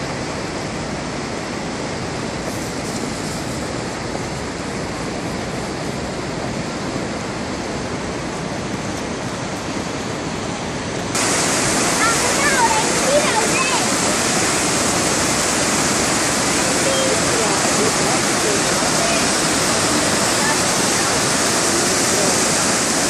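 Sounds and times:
river rushing over rapids: 0.0s - 23.0s.

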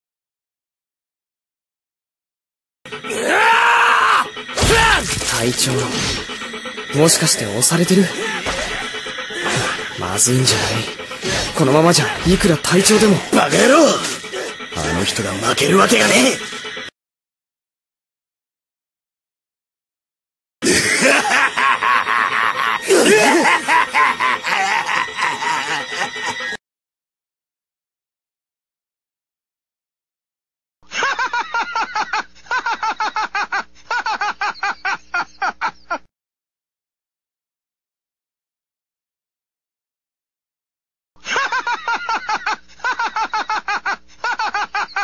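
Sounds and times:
man laughing maniacally: 2.9s - 5.2s, 7.9s - 14.7s, 20.6s - 26.6s, 30.9s - 36.1s, 41.2s - 45.0s.

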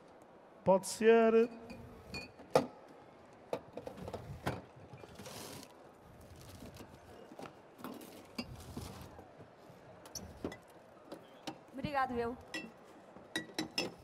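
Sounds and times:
glasses and bottles clinking: 1.6s - 2.4s, 12.5s - 14.0s.

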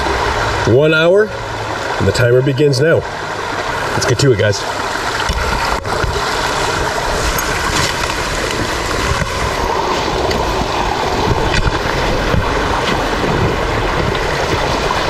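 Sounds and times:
brook running over stones: 1.6s - 15.0s
wind rumble on microphone: 5.2s - 15.0s.

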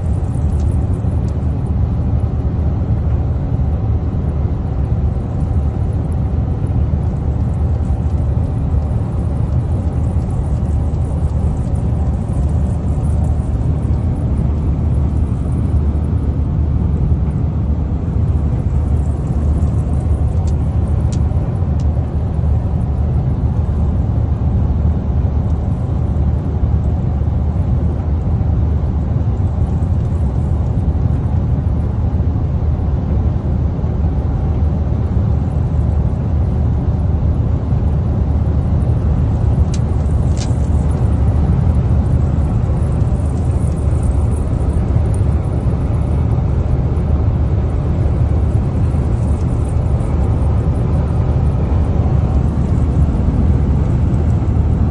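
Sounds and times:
vehicle engine and tyre rumble: 0.0s - 54.9s.

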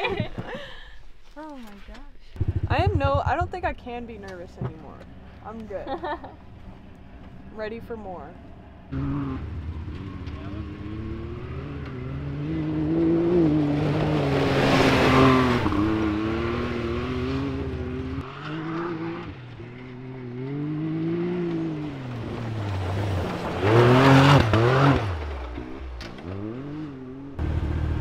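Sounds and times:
utv engine accelerating: 2.4s - 28.0s
dirt spraying from tyres: 20.9s - 26.6s.

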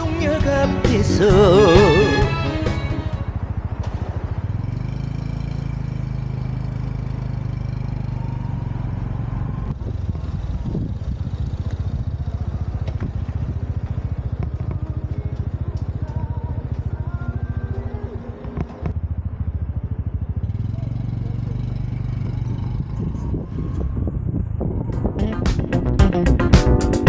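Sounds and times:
motorcycle engine running: 0.0s - 27.0s.

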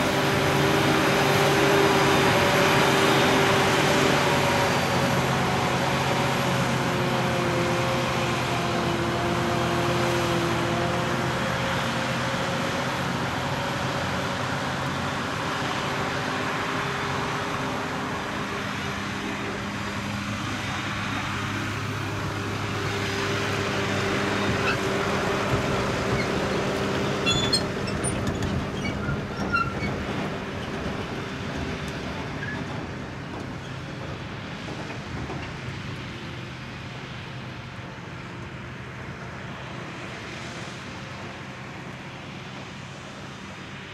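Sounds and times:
forage harvester running: 0.0s - 43.9s
tractor engine: 0.0s - 43.9s.

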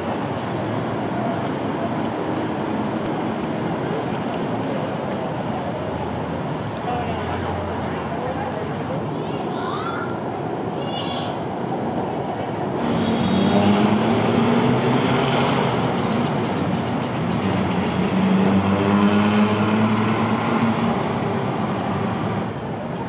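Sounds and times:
background traffic noise: 0.0s - 23.0s
motor vehicle engine drone: 12.8s - 23.0s.

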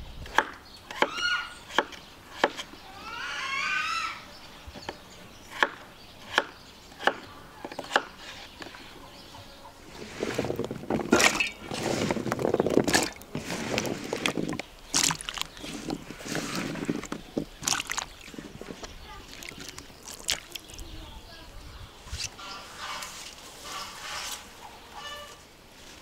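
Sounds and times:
water sloshing and splashing: 9.9s - 21.0s.

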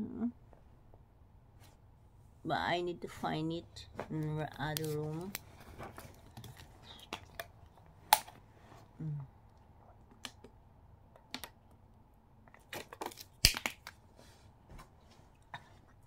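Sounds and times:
low voice hum: 8.9s - 9.4s.

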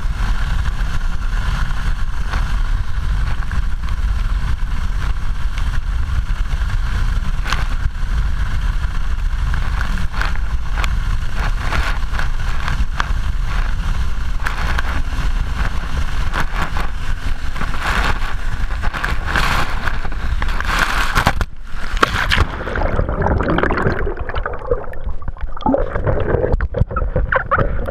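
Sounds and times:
water spraying on microphone: 9.0s - 27.9s
underwater gurgling: 21.6s - 27.9s.

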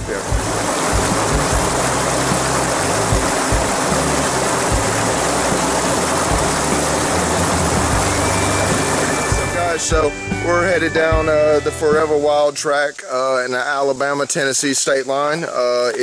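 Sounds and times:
background music: 0.0s - 12.6s
creek water spilling into pool: 0.0s - 16.0s.

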